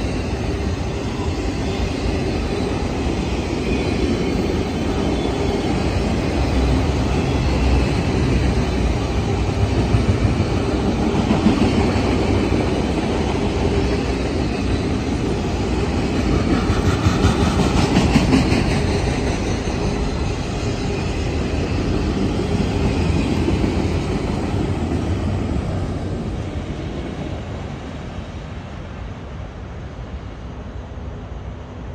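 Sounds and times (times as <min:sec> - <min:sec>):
freight train wheels on rails: 0:00.0 - 0:31.9.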